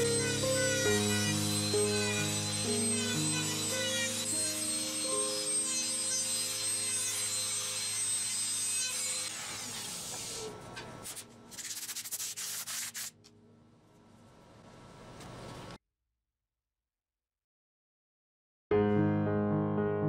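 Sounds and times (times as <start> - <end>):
background music: 0.0 - 6.8.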